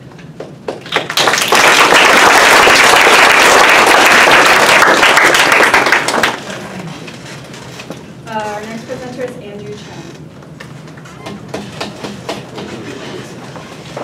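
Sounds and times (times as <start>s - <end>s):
audience applauding: 0.7s - 6.9s.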